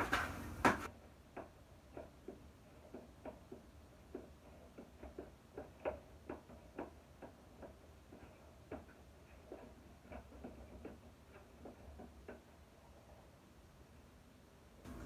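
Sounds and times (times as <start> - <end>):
mixing tool knocking plastic bucket: 0.0 - 0.9.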